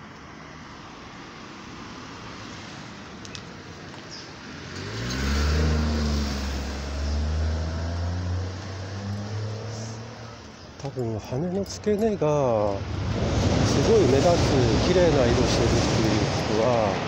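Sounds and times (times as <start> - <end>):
outdoor background noise: 0.0 - 17.0
vehicle engine droning: 4.6 - 11.7.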